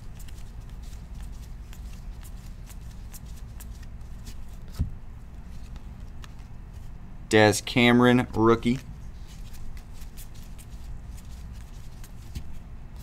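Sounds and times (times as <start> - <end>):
cards being flicked through: 0.0 - 6.5.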